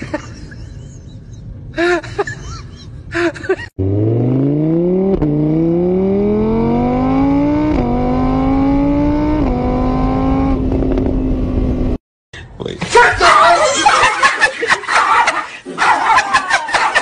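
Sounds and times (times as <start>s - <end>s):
scooter engine accelerating: 3.8s - 12.0s.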